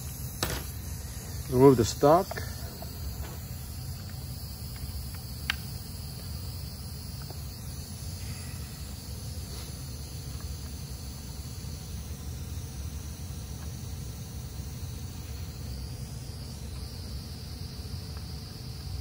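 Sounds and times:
compressed air hissing out: 0:00.0 - 0:04.7, 0:07.8 - 0:11.3.

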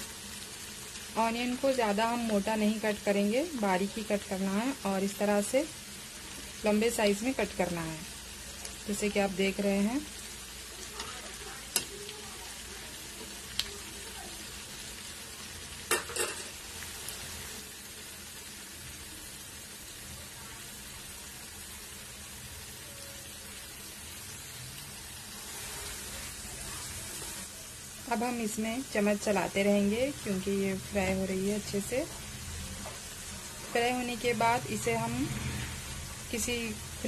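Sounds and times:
onions sizzling in hot oil: 0:00.0 - 0:37.0.

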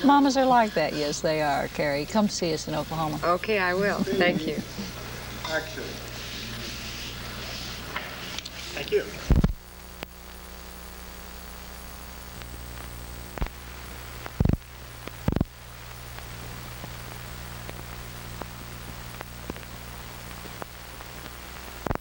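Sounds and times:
old film soundtrack hiss and hum: 0:00.0 - 0:22.0
film pops and crackles: 0:01.2 - 0:10.6, 0:12.2 - 0:22.0
faint ticks: 0:14.2 - 0:17.0, 0:17.6 - 0:22.0.

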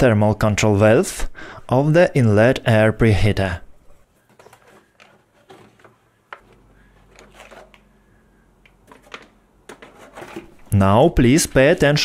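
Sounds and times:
plastic parts clicking and knocking: 0:04.3 - 0:07.9, 0:08.6 - 0:10.7.

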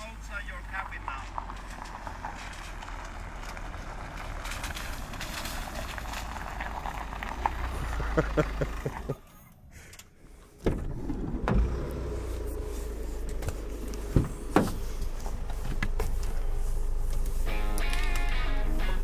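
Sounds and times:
car engine rumbling: 0:00.0 - 0:19.0
sharp knocks and clunks: 0:13.3 - 0:16.2.

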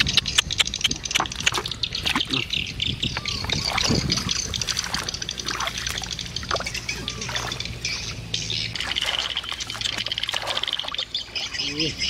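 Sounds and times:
water splashing in a bucket: 0:03.2 - 0:07.8, 0:08.8 - 0:11.7
fish thrashing: 0:03.2 - 0:11.5.

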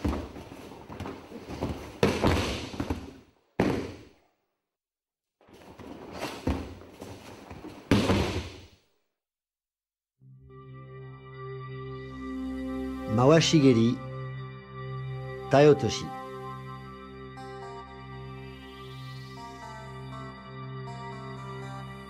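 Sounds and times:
body thudding onto mat: 0:00.0 - 0:04.0, 0:05.6 - 0:08.7.

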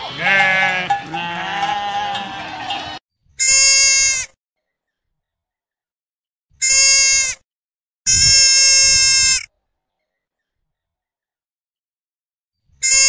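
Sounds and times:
farm animal bleating: 0:00.0 - 0:04.3, 0:06.6 - 0:07.4, 0:08.1 - 0:09.5, 0:12.8 - 0:13.0.

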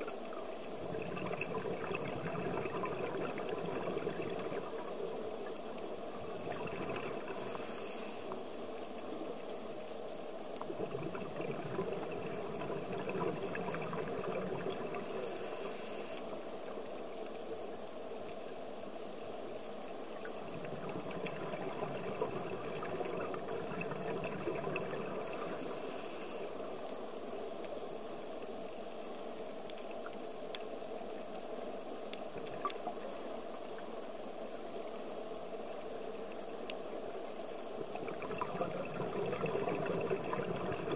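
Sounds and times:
underwater rushing water: 0:00.0 - 0:40.9
regulator bubbles: 0:00.8 - 0:07.8, 0:10.6 - 0:15.2, 0:20.2 - 0:25.8, 0:37.8 - 0:40.9.

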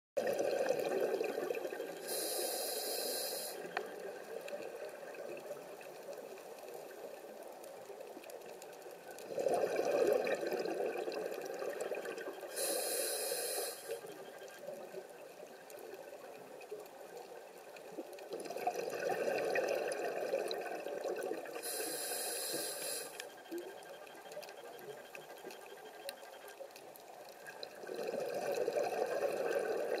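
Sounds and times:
exhaled bubbles underwater: 0:00.2 - 0:02.4, 0:09.1 - 0:14.5, 0:18.0 - 0:21.9, 0:27.5 - 0:30.0
regulator inhale hiss: 0:02.0 - 0:03.8, 0:12.5 - 0:14.1, 0:21.6 - 0:23.4.

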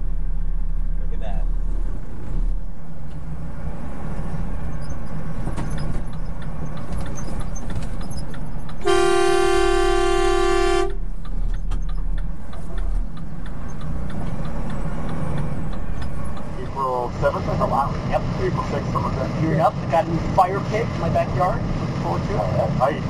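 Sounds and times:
low engine rumble: 0:00.0 - 0:23.0
vehicle horn blast: 0:08.8 - 0:11.0.

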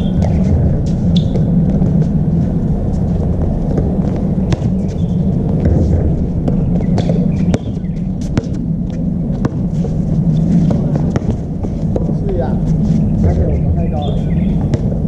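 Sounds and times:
steady low rumble: 0:00.0 - 0:15.0
basketball bouncing on court: 0:04.5 - 0:04.7, 0:05.6 - 0:08.6, 0:09.3 - 0:09.6, 0:14.6 - 0:15.0.

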